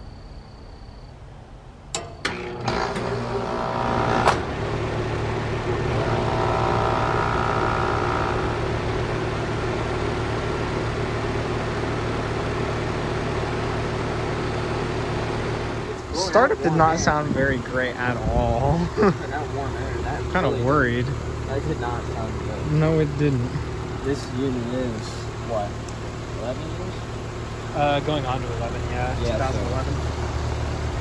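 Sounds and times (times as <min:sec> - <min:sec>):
heat pump running hum: 0:01.9 - 0:31.0
brief higher whine: 0:05.9 - 0:09.1.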